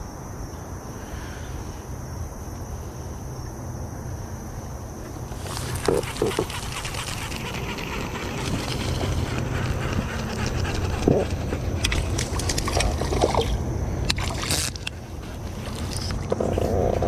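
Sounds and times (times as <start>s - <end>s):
wind rumbling on microphone: 5.2s - 17.0s
water lapping at hull: 5.3s - 16.4s.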